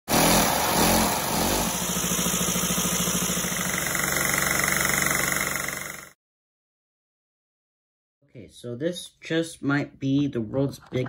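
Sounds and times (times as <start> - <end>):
rushing suction hiss: 0.1 - 3.9
small engine beat: 0.1 - 6.2.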